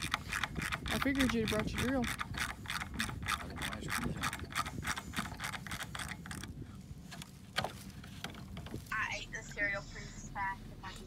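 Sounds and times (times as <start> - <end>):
hand ratchet clicking: 0.0 - 6.6.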